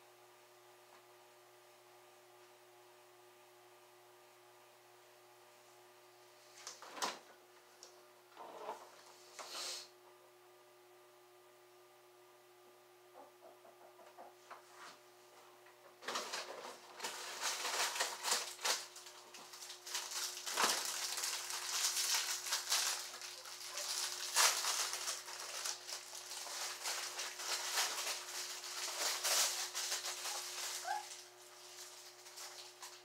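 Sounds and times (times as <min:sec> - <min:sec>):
rustling and crackling with clicks: 0:06.6 - 0:09.5, 0:13.9 - 0:33.0.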